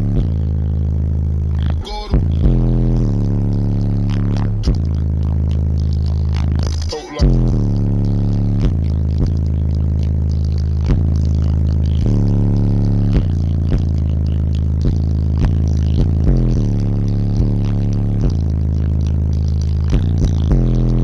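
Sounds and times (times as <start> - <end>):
bass-heavy music from subwoofers: 0.0 - 21.0.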